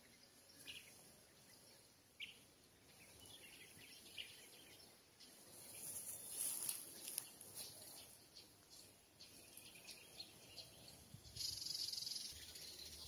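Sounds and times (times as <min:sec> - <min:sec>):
bird chirps: 0:00.0 - 0:13.0.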